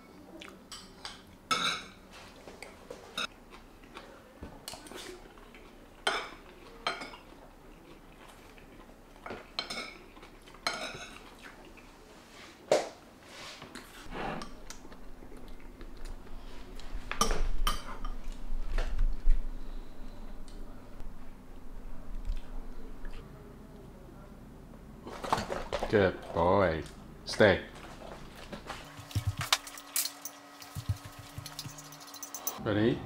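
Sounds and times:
metal spoon clinking on ceramic plate: 31.1 - 32.6.

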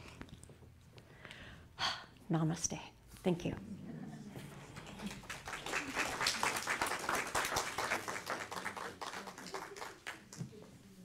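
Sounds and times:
crowd applauding: 4.5 - 10.7.

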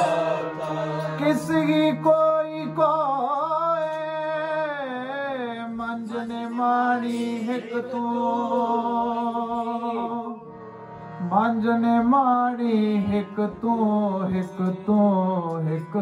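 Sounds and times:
man singing melismatic phrase: 0.0 - 9.0
harmonium drone: 0.0 - 16.0.

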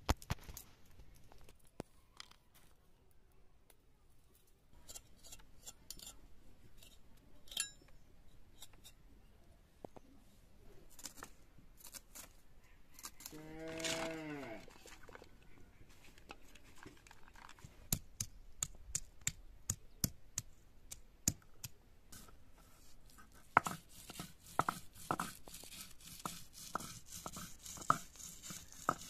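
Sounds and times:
grinding strokes on stone: 23.5 - 29.0.

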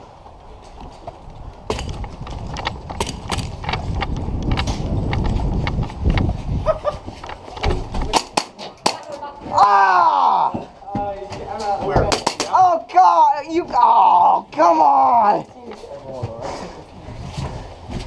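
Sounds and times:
pistol firing sharp cracks: 8.1 - 9.2.

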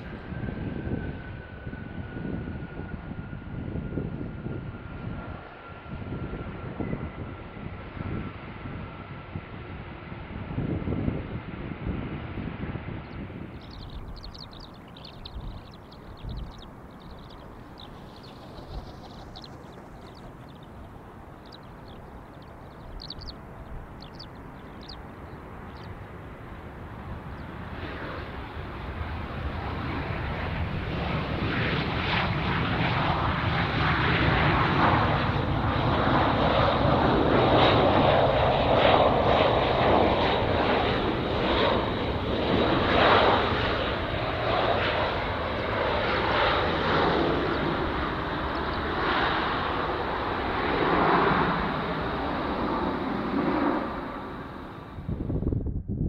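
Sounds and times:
jet airliner engine whine: 0.0 - 56.0
bird chirps: 13.5 - 26.0.

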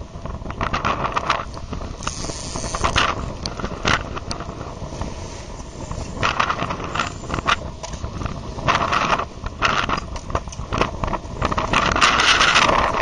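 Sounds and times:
wind on microphone: 0.0 - 13.0
boat motor running: 2.0 - 4.0.

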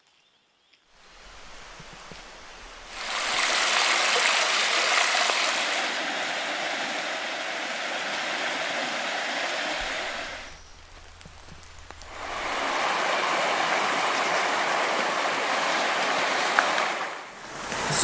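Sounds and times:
water rushing: 1.0 - 18.0.

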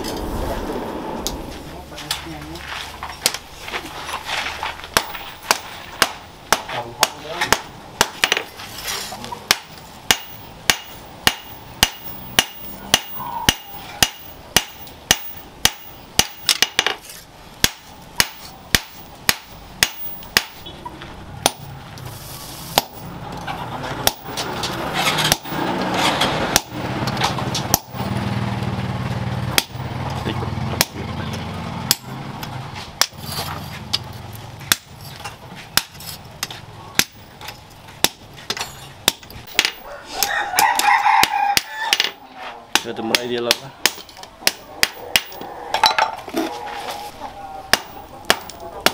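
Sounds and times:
low steady hum: 0.0 - 6.7
hammer striking hot steel on anvil: 4.9 - 8.5, 9.5 - 17.0, 17.6 - 20.7, 21.4 - 21.7, 22.7 - 23.0, 24.0 - 24.4, 25.2 - 25.6, 26.5 - 26.8, 27.5 - 28.0, 29.6 - 29.8, 31.9 - 32.1, 33.0 - 33.2, 35.8 - 46.1, 47.7 - 48.9.

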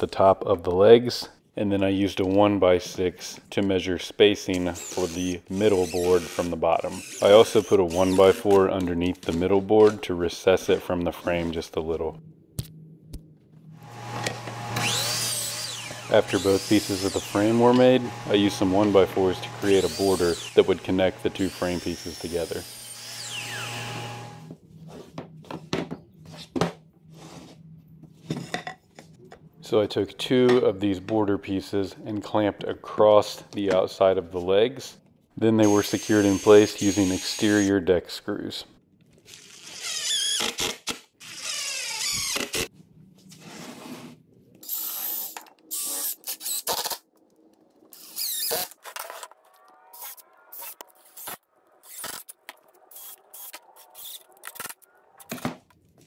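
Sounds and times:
miter saw spinning down: 13.8 - 24.4.

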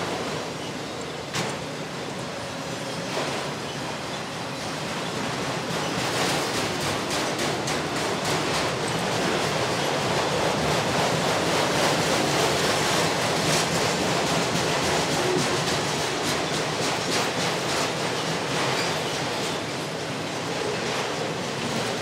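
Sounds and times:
steel wheels rumbling on rails: 0.0 - 22.0
clacks and rattles: 5.1 - 22.0.

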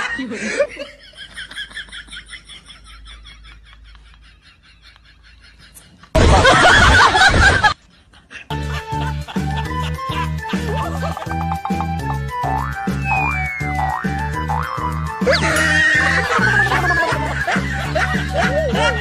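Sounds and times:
people laughing: 0.0 - 12.2, 15.2 - 19.0
bouncy novelty music: 8.5 - 19.0.

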